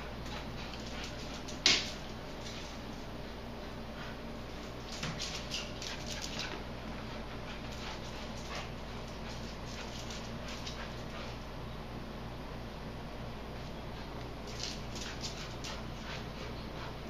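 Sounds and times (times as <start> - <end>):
dog claws clicking on tiles: 14.5 - 15.8.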